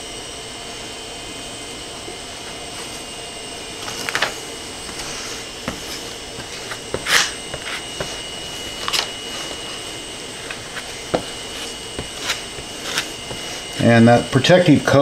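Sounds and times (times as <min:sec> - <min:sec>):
steady background hum: 0:00.0 - 0:15.0
paper backing rustling and crinkling: 0:03.8 - 0:13.9.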